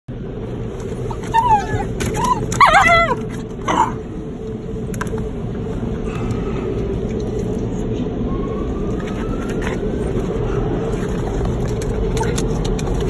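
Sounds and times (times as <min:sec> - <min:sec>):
car wash rushing: 0:00.2 - 0:13.0
dog whining and yipping: 0:01.0 - 0:04.0, 0:08.3 - 0:10.2.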